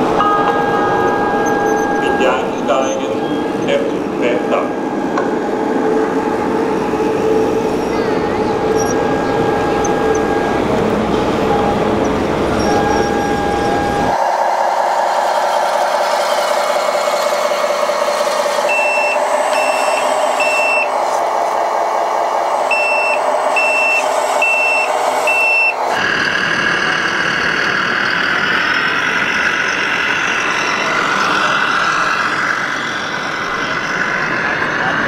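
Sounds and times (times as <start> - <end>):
noisy exhibition hall din: 0.0 - 5.3, 6.0 - 14.2
warning alarm beeps: 0.2 - 5.0, 7.9 - 14.1, 18.7 - 20.9, 22.7 - 25.8
toy excavator motor whine: 15.2 - 21.2.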